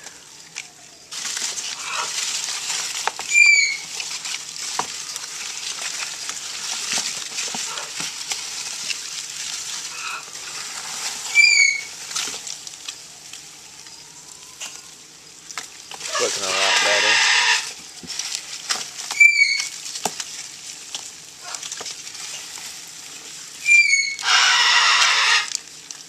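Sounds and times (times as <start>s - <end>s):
cardboard rustling and scraping: 1.1s - 13.4s, 15.5s - 24.2s
bird chirping: 3.2s - 3.9s, 11.3s - 11.9s.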